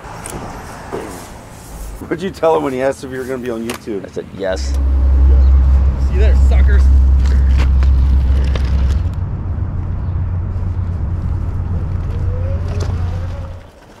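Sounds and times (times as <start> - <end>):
faint rising whine: 4.5 - 13.7
heavy vehicle engine droning: 4.5 - 13.7.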